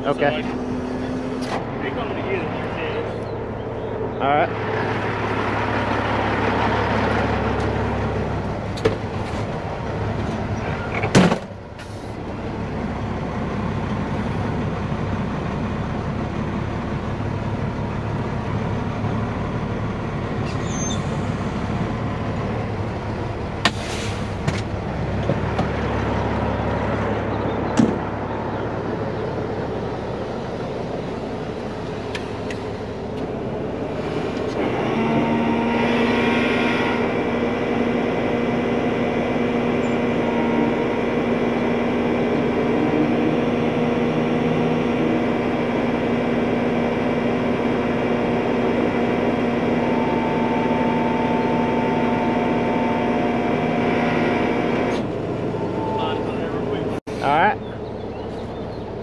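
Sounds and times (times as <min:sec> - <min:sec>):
steady pitched winch hum: 0:00.0 - 0:11.0, 0:24.6 - 0:59.0
truck diesel engine running: 0:00.0 - 0:59.0.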